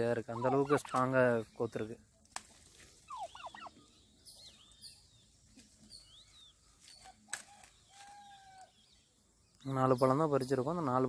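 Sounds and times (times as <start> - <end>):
small birds chirping: 0.0 - 11.0
turkey call: 0.3 - 1.1, 3.0 - 3.9
fruit stem snapping: 2.2 - 2.6, 7.3 - 7.8.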